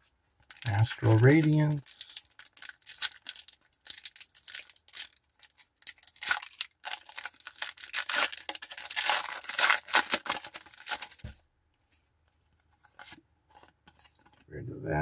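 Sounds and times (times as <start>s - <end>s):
foil wrapper tearing and crinkling: 0.4s - 11.3s.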